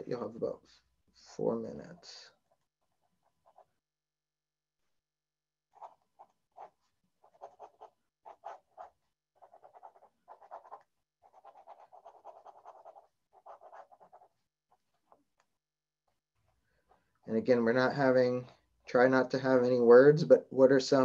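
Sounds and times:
pen scratching on paper: 2.3s - 3.8s, 5.7s - 15.5s.

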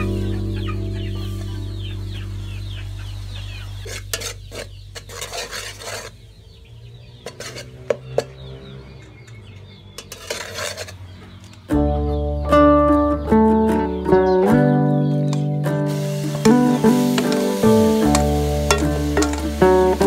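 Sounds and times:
metal ladle scraping steel pot: 3.8s - 6.2s, 7.2s - 8.4s, 10.0s - 11.1s, 16.3s - 20.0s.

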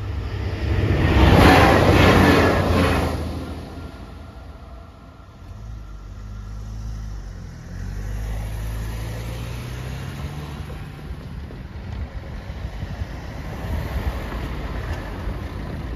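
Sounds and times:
car engine accelerating: 0.0s - 11.5s
cars passing: 0.0s - 15.9s.

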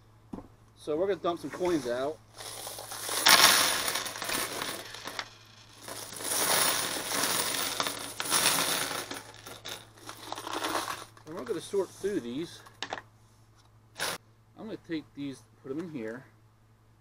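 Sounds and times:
coins pouring onto wooden table: 2.4s - 11.5s, 14.0s - 14.2s.

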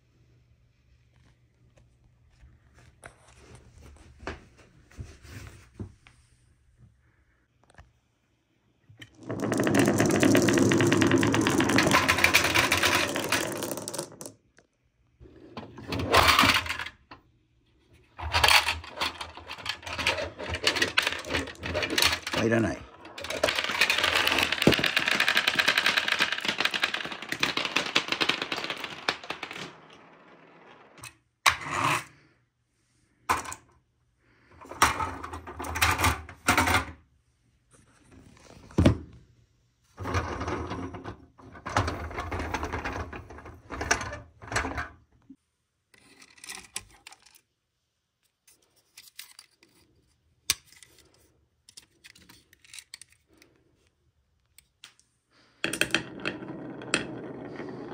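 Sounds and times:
marbles knocking: 9.0s - 14.6s, 20.3s - 31.1s
marbles rolling and clattering: 9.0s - 14.7s, 15.5s - 17.0s, 18.2s - 32.1s, 40.0s - 44.9s, 55.6s - 57.9s.

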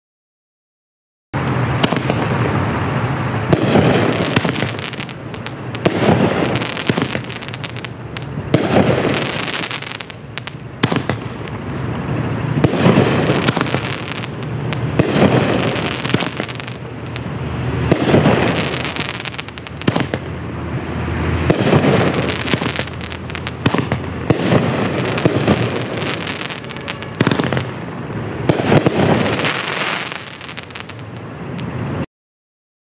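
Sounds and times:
firework cake bursts: 1.4s - 11.3s.

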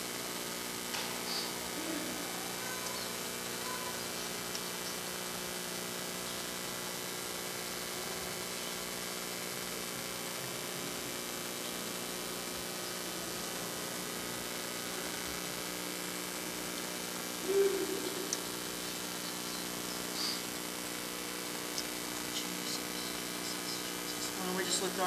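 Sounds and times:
electrical mains hum: 0.0s - 25.0s
even hiss: 10.9s - 25.0s.

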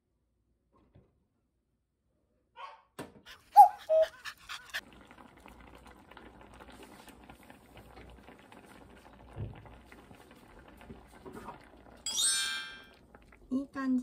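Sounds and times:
broth simmering and bubbling: 3.3s - 12.1s, 12.8s - 14.0s.

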